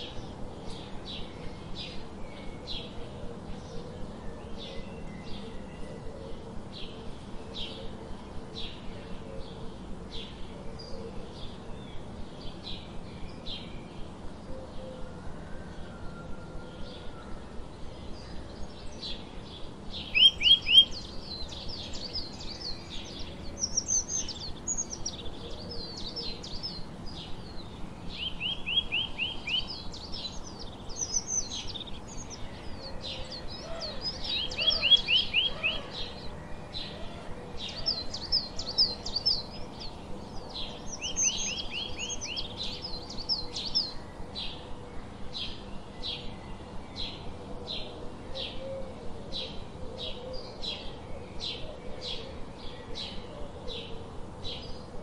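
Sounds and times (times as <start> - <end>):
sparrows chirping: 18.1 - 44.6.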